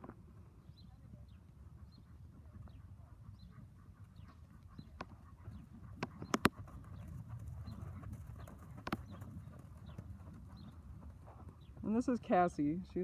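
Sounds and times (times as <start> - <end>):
horse hoofbeats trotting on sand: 0.0 - 13.0
sharp clicks: 6.0 - 6.6.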